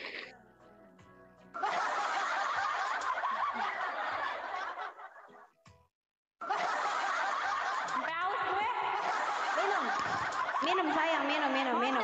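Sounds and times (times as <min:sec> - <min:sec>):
people laughing: 0:01.6 - 0:05.6, 0:06.4 - 0:12.0.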